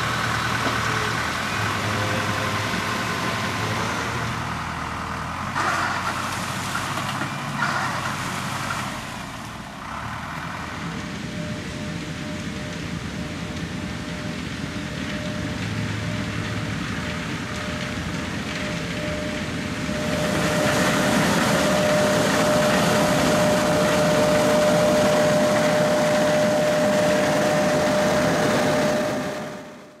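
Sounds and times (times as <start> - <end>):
harvester engine and pickup gear: 0.0 - 30.0
steady high whine: 9.3 - 30.0.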